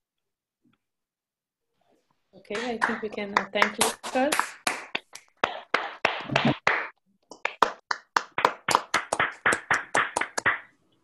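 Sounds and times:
hands clapping: 2.5s - 10.8s.

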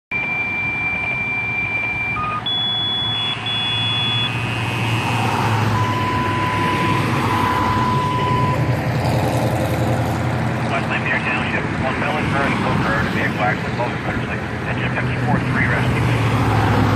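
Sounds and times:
diesel engine idling: 0.1s - 16.9s
electronic alert tones: 0.2s - 4.7s, 5.8s - 8.6s.

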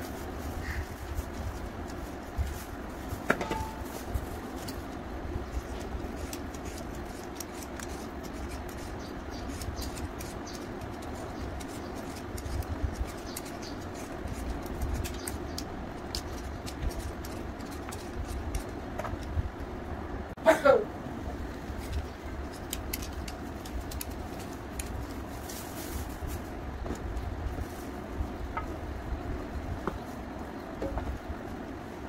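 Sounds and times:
peeler scraping mango skin: 0.0s - 19.3s, 21.7s - 26.1s
steady low hum: 0.0s - 32.0s.

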